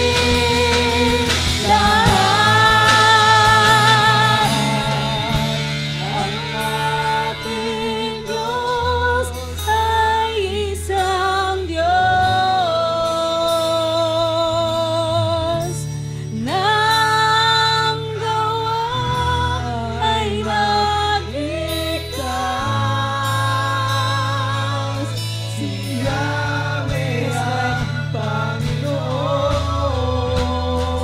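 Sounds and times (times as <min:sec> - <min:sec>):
person singing long notes: 0:00.0 - 0:15.7
worship band playing gospel: 0:00.0 - 0:31.0.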